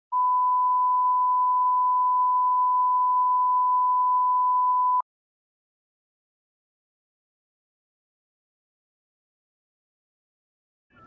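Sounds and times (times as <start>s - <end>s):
steady reference tone beep: 0.1s - 5.0s.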